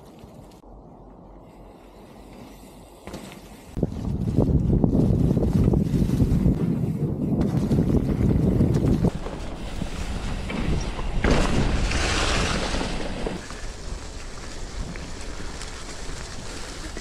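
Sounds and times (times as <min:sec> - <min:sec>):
wind buffeting microphone: 0:03.7 - 0:17.0
bike tyres rustling through leaves: 0:08.8 - 0:17.0.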